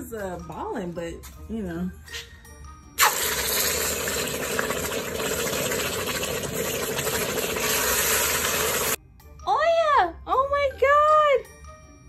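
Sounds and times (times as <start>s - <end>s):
hot flask hissing in water: 3.0s - 9.0s.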